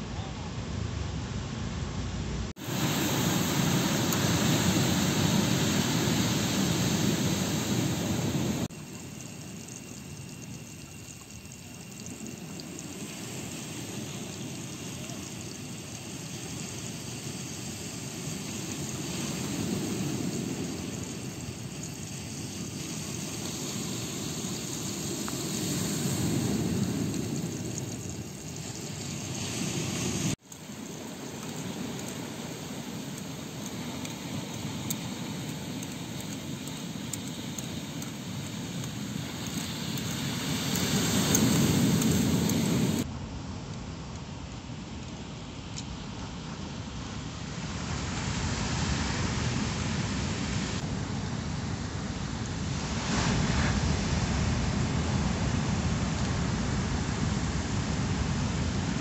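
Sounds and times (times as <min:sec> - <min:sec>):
ocean surf roaring: 0:02.6 - 0:43.1.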